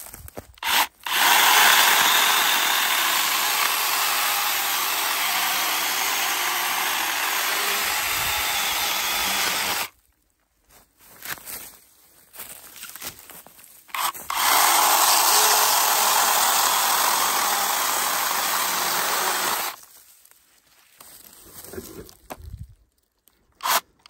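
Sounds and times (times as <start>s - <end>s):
mini chainsaw cutting wood: 0.6s - 9.9s, 13.9s - 19.8s, 23.6s - 23.9s.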